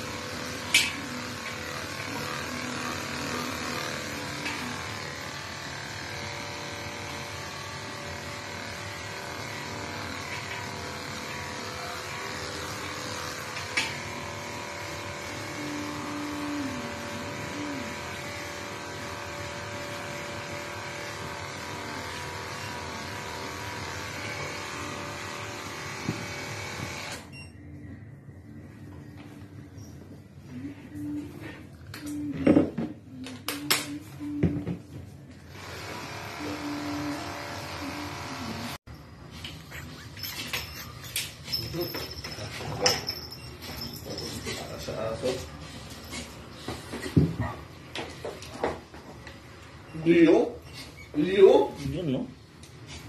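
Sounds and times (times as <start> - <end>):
pet clipper whirring hiss: 0.0 - 27.2, 35.5 - 38.8.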